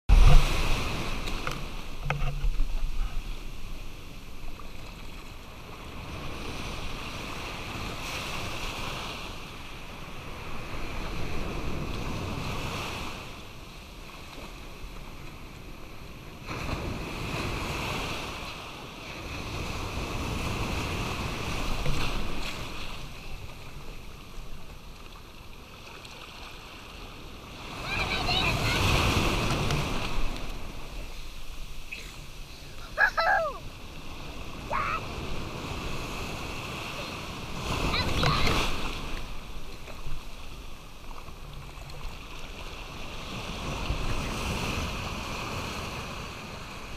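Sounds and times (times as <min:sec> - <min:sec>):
wind on microphone: 0:00.1 - 0:03.8
small waves breaking on sand: 0:00.1 - 0:46.9
surf washing in shallow water: 0:00.1 - 0:46.9.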